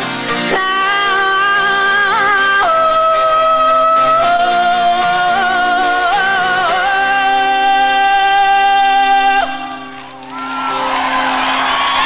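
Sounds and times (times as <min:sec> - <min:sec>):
guitar accompaniment: 0:00.0 - 0:12.0
woman singing: 0:00.4 - 0:09.8.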